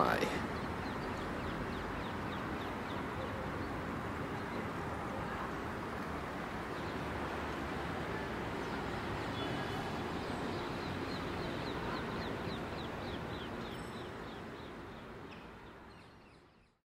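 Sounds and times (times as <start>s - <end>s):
low background noise: 0.0s - 16.8s
bird chirping: 0.2s - 4.8s, 8.6s - 16.8s.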